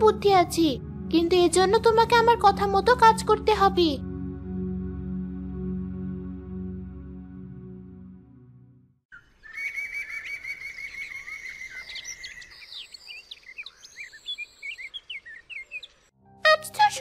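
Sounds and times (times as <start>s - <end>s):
soft background music: 0.0s - 8.8s, 16.2s - 17.0s
songbirds chirping: 9.1s - 16.1s.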